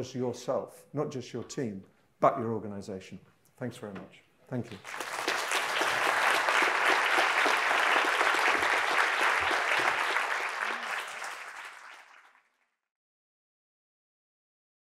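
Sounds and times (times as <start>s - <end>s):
audience applauding: 4.7s - 12.6s.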